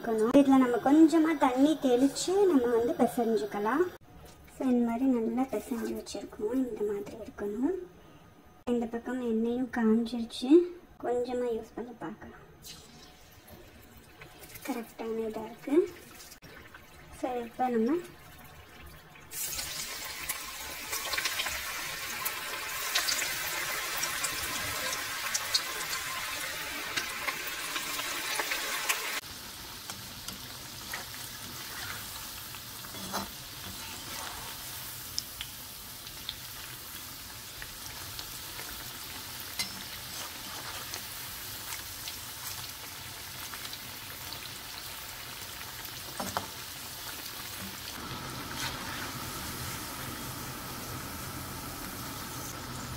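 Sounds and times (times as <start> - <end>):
batter sizzling in hot oil: 12.6 - 52.9.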